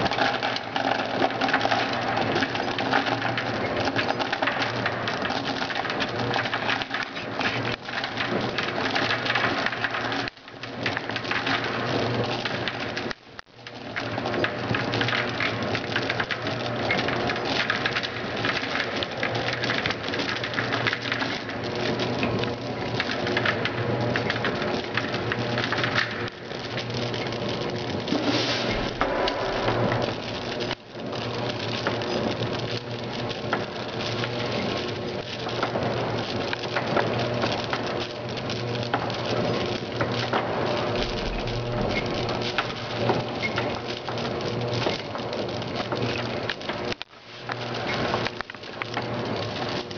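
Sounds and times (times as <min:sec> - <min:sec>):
small pieces rattling in metal hopper: 0:00.0 - 0:13.0, 0:14.2 - 0:30.8
low machine hum: 0:25.0 - 0:46.4.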